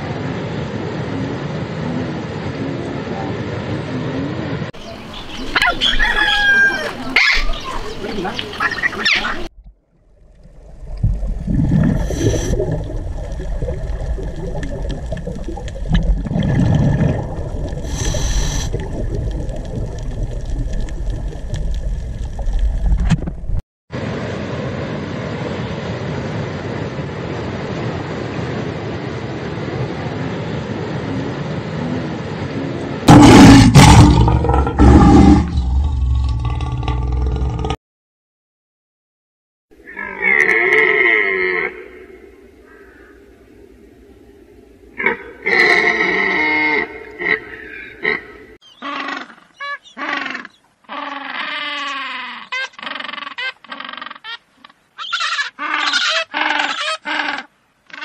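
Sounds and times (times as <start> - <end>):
animal calls: 5.4 - 9.5, 45.0 - 58.0
steady background hiss: 41.8 - 46.4
penguins braying: 45.0 - 58.0.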